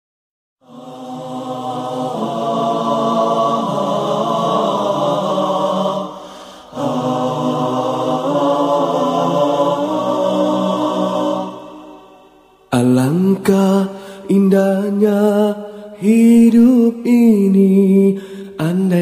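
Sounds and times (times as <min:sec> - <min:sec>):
male vocal group singing harmony: 0:00.6 - 0:19.0.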